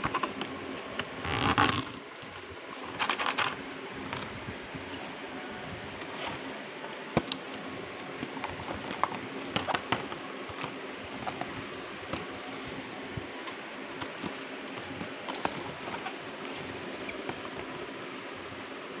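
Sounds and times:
steady background hiss: 0.0s - 19.0s
cardboard boxes tapping and clicking: 8.2s - 17.8s.

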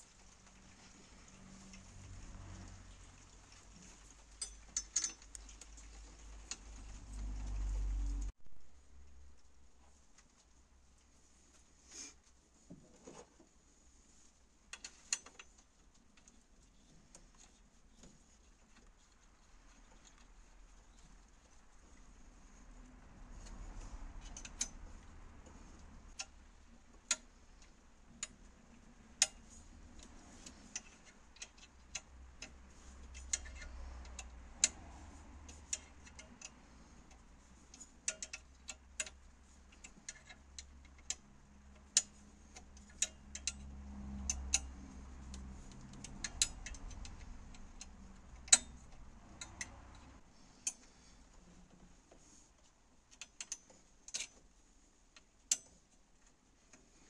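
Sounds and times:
ratchet clicking: 29.1s - 50.0s.

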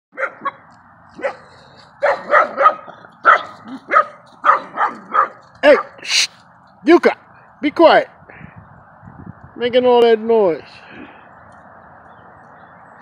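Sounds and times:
dogs barking: 0.1s - 6.1s.

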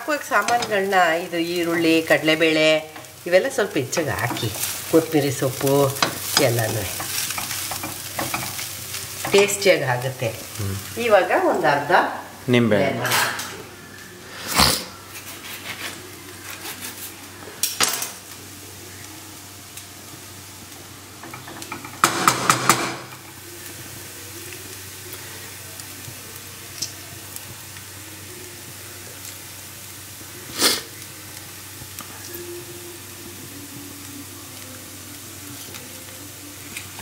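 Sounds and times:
faint sizzle: 0.0s - 37.0s
spoon knocking against pan: 6.0s - 8.6s, 21.2s - 23.3s.

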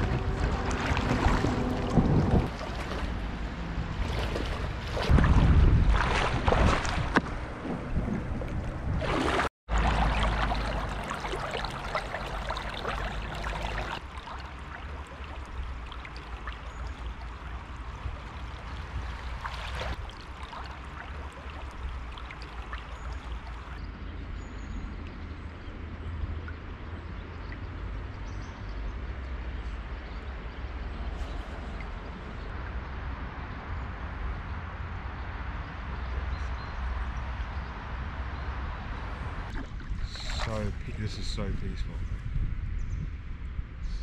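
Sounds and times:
water splashing and gurgling: 0.0s - 23.8s, 39.1s - 41.8s
kayak paddle strokes: 6.1s - 17.2s.

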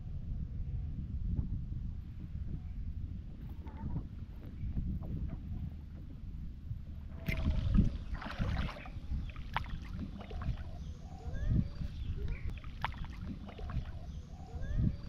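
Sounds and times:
low wind rumble on microphone: 0.0s - 15.0s
shallow water splashing: 7.0s - 10.9s, 11.8s - 14.2s.

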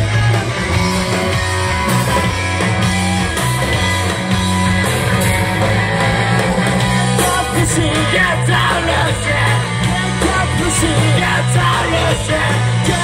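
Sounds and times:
instrumental rock band playing: 0.0s - 13.0s.

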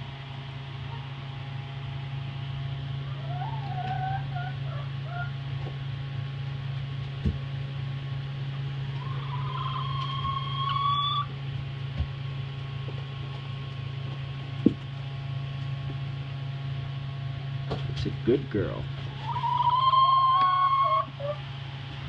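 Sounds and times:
steady low hum: 0.0s - 22.0s
hen calling: 3.1s - 5.3s, 9.0s - 11.3s, 19.1s - 21.4s.

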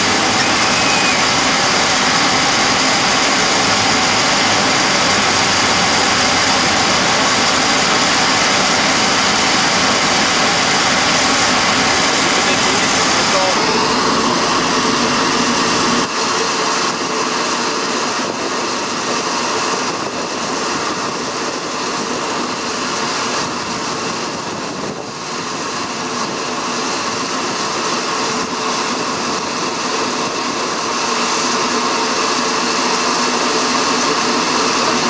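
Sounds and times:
loading chute rushing: 0.0s - 16.0s
constant mechanical hum: 0.0s - 35.0s.

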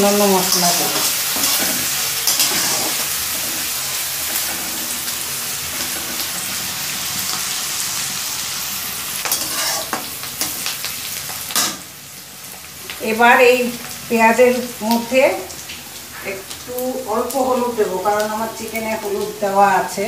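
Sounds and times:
onions sizzling in hot oil: 0.0s - 20.0s
metal spatula scraping a pan: 0.4s - 6.6s, 9.2s - 11.8s.

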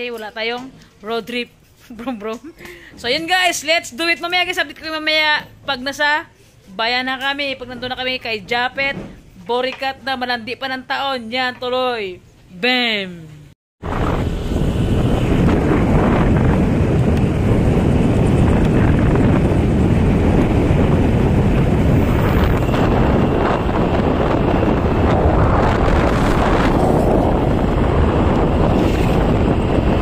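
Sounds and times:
wind rushing over microphone: 13.8s - 30.0s.

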